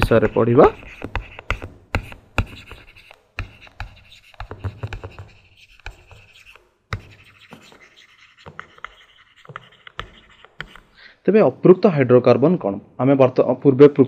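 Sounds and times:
stylus taps and clicks: 0.0s - 11.0s
stylus scratching on tablet: 0.0s - 11.1s.

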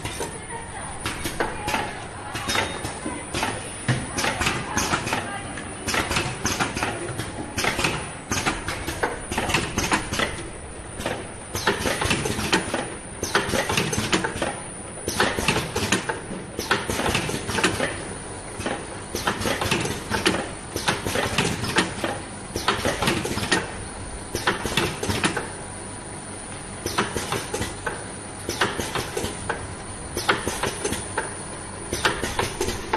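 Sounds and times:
steady machine noise: 0.0s - 16.7s.

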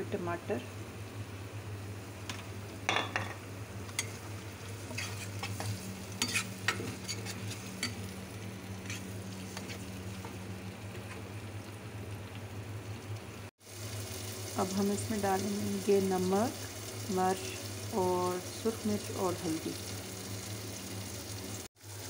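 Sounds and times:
tomatoes sizzling in pot: 0.1s - 22.0s
metal spoon scraping pan: 4.8s - 8.0s, 8.8s - 9.8s.

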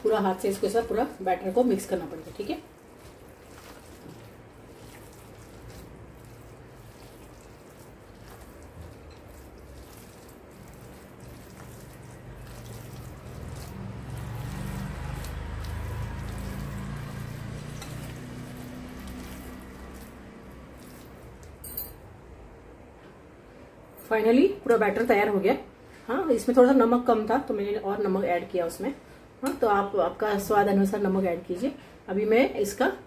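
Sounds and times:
hand squelching wet meat: 0.5s - 21.6s.

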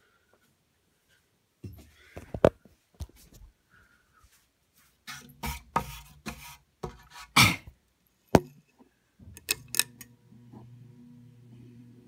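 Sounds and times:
ceiling fan motor humming: 9.2s - 12.0s.

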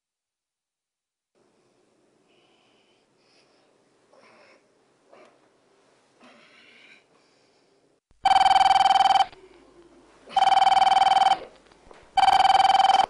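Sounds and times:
telephone ringing: 8.2s - 9.4s, 10.3s - 11.5s, 12.2s - 13.0s.

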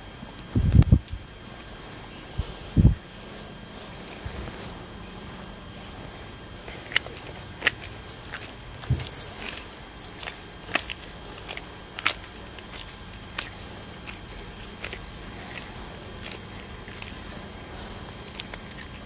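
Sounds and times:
small clicks and sticky ticks: 6.6s - 19.0s.

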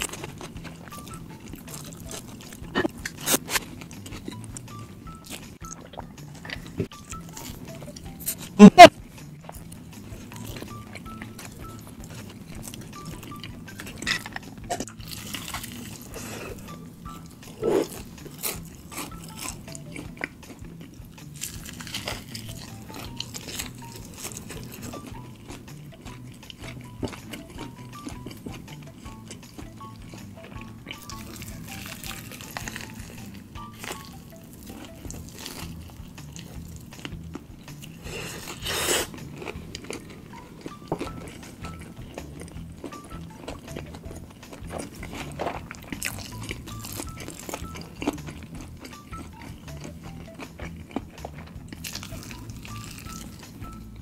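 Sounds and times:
chewing crispy fried chicken: 0.0s - 54.0s
breading crackling: 17.2s - 54.0s.

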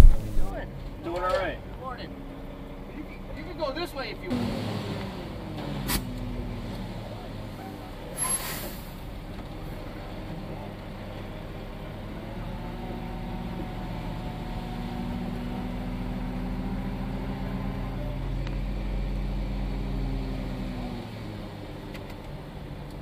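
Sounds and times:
diesel truck engine running: 0.0s - 23.0s
air brake hiss: 8.2s - 9.0s.

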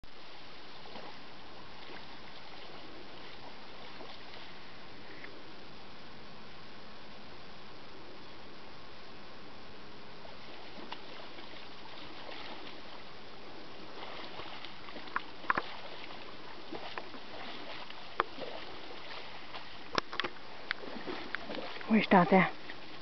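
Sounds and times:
steady background hiss: 0.1s - 23.0s
moose legs splashing in water: 0.2s - 4.8s, 10.2s - 23.0s.

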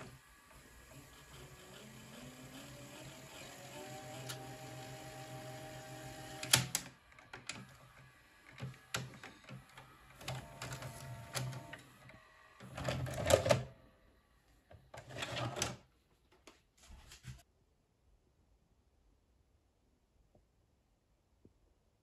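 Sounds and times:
motor humming: 0.0s - 12.8s.

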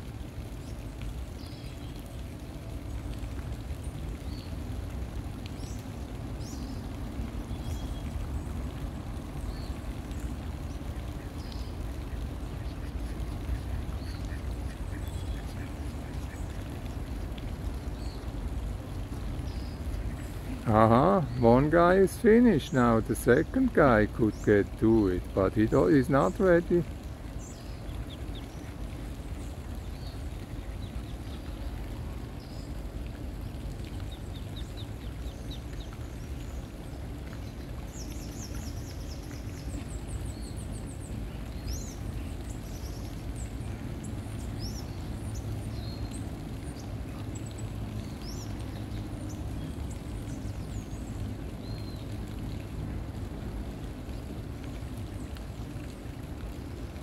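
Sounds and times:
small birds chirping: 0.6s - 2.2s, 2.8s - 53.2s.

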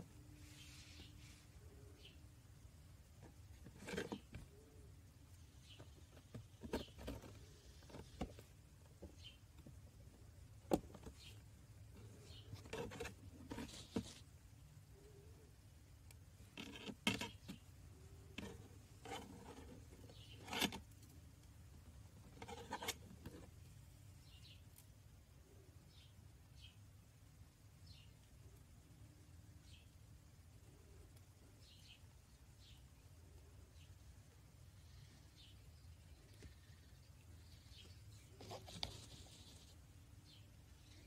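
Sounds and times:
wire clicking and scraping: 3.2s - 4.5s, 18.2s - 21.2s, 22.2s - 23.5s.

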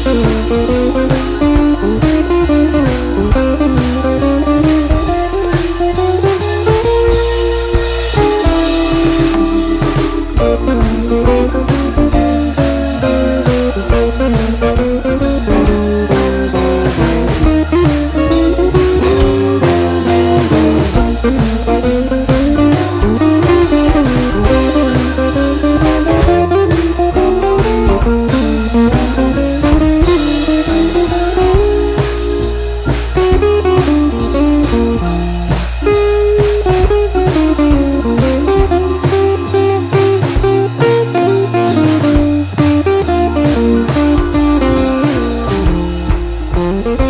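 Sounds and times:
instrumental music with drum beat: 0.0s - 47.0s.

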